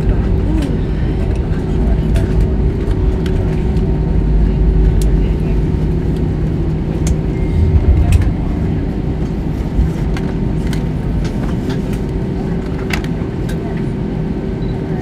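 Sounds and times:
aircraft engines and landing gear rumble: 0.0s - 15.0s
steady hum: 3.8s - 11.4s.

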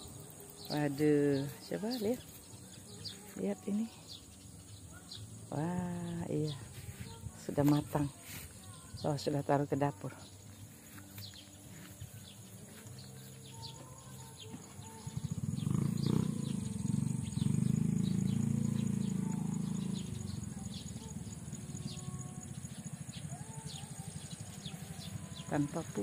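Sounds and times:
birds chirping: 0.0s - 26.0s
high insect buzz: 12.2s - 25.5s.

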